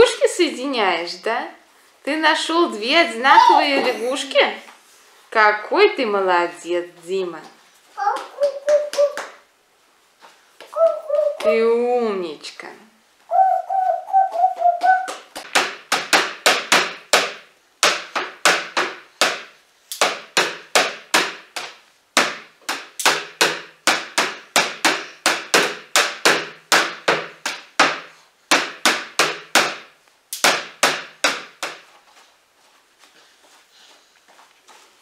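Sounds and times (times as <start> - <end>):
hands slapping a wooden door: 14.8 - 31.9.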